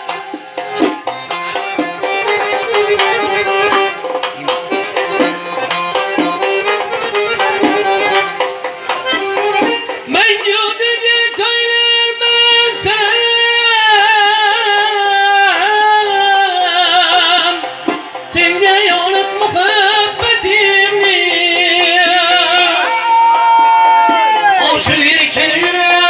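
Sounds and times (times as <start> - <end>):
frame drum: 0.0 - 10.7
accordion: 0.0 - 23.0
long-necked lutes: 0.0 - 25.7
man singing with vibrato: 0.0 - 26.0.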